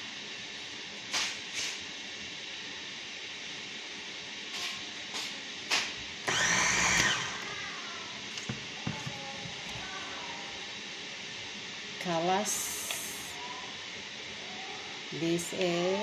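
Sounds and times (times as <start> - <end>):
food chopper motor spinning up: 6.2 - 7.5
steady hiss: 7.5 - 16.0.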